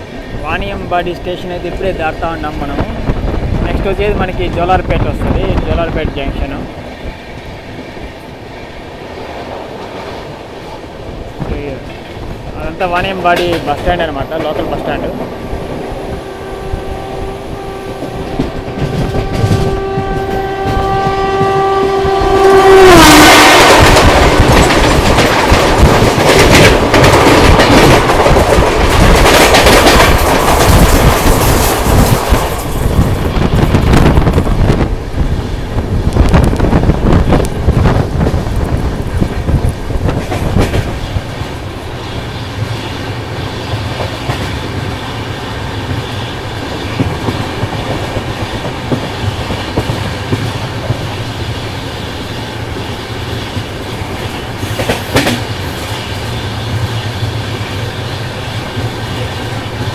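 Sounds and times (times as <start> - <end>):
train wheels clickety-clack: 0.0 - 16.0, 17.9 - 59.9
train rushing past: 0.0 - 59.9
train horn blast: 16.1 - 24.0.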